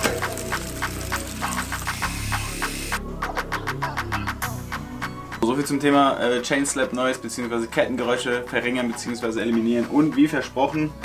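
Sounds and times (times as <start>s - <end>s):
background music with ticking beat: 0.0s - 11.0s.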